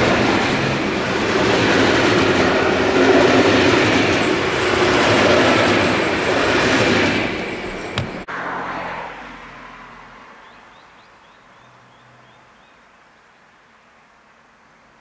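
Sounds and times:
train coaches rolling: 0.0 - 8.3
bird chirps: 10.4 - 12.8.

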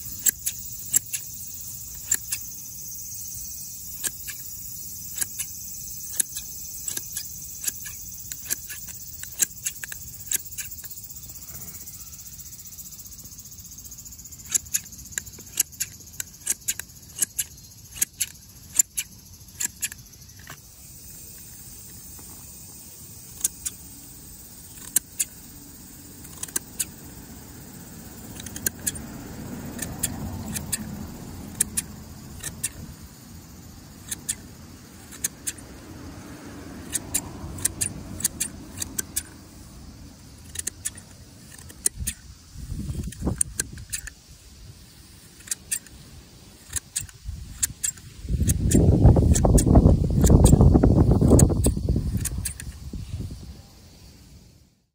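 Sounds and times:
grass shears snipping: 0.0 - 11.1, 14.3 - 20.7, 23.2 - 23.9, 24.6 - 27.2, 27.8 - 33.0, 33.9 - 35.7, 36.8 - 39.4, 40.2 - 44.2, 45.2 - 52.8.

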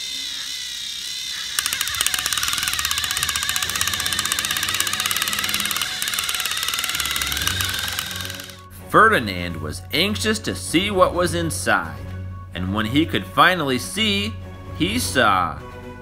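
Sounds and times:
fast clicking of gears: 0.0 - 8.6
toy train motors whining: 0.0 - 8.7.

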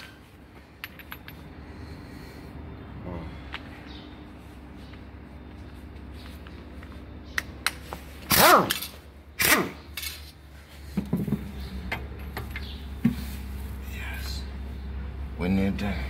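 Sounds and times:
pneumatic impact wrench whining: 8.2 - 10.2.

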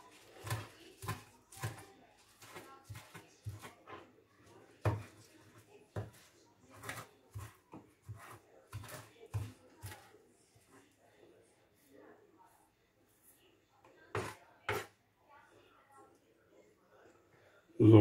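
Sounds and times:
knife chopping on cutting board: 0.3 - 3.8, 4.8 - 5.3, 6.0 - 10.1, 14.1 - 14.9.

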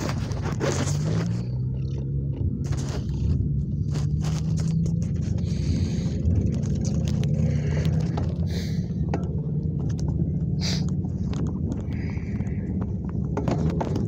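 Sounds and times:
small clicks and rattles: 0.0 - 8.5, 9.1 - 14.0
wind buffeting microphone: 0.0 - 14.0
bicycle tyre noise: 2.6 - 9.1, 10.0 - 14.0.

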